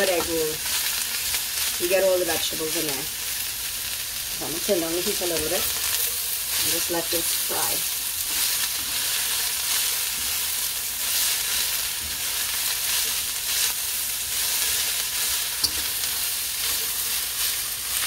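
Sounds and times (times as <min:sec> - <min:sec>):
vegetables sizzling in a wok: 0:00.0 - 0:18.0
spatula stirring and tossing: 0:04.5 - 0:18.0.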